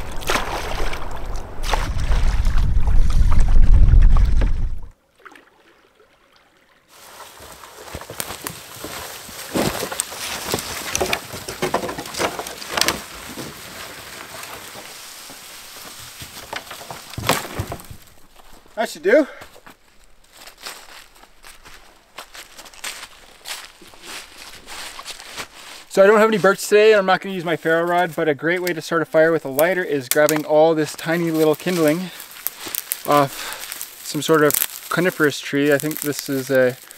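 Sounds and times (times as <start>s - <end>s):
dry branches cracking and snapping: 0.0s - 4.6s, 7.1s - 18.6s, 19.6s - 25.9s, 29.6s - 36.9s
canoe paddling on water: 0.0s - 18.2s
branches dragged over forest floor: 6.9s - 18.8s, 19.5s - 28.2s, 29.5s - 36.9s.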